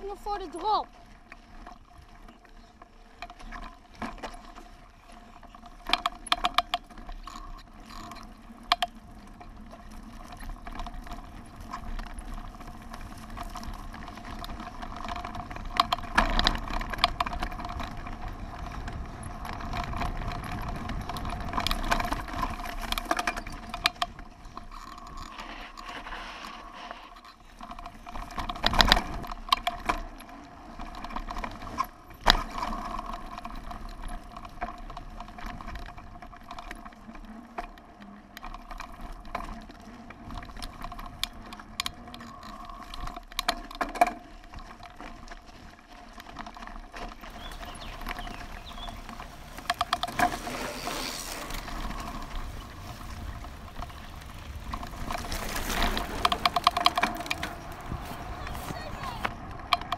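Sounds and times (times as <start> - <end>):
bike chain rattling and ticking: 5.6 - 26.1, 46.2 - 58.7
bike knocking over bumps: 47.0 - 59.9.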